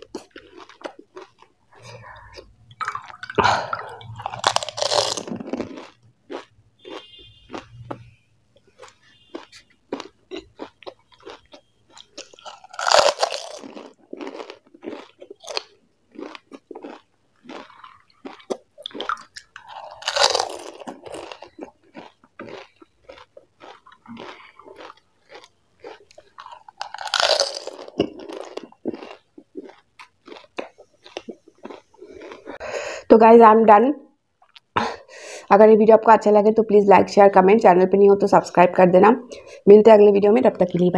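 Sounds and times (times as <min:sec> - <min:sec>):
crunching and chewing: 0:00.0 - 0:32.6.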